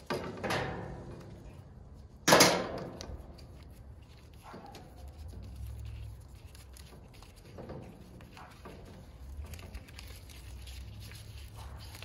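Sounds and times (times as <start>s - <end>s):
tape rustling and peeling: 1.2s - 12.0s.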